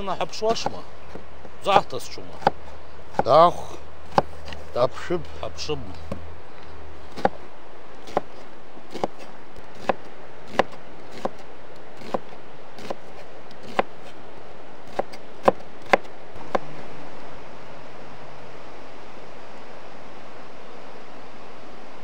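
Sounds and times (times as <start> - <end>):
knife chopping on wooden board: 0.5 - 1.2, 2.4 - 3.4, 4.1 - 4.6, 7.1 - 7.4, 8.1 - 11.4, 12.0 - 12.2, 12.8 - 13.9, 14.9 - 16.7.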